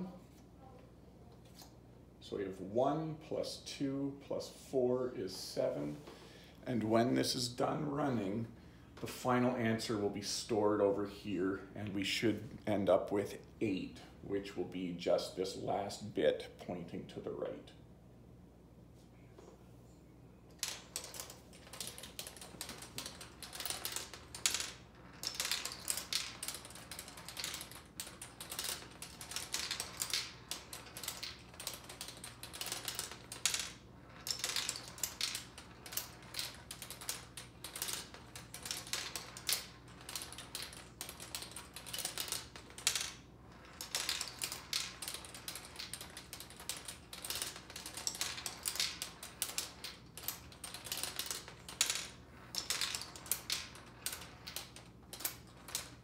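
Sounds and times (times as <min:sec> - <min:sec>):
marbles clattering on plastic board: 0:20.5 - 0:56.0.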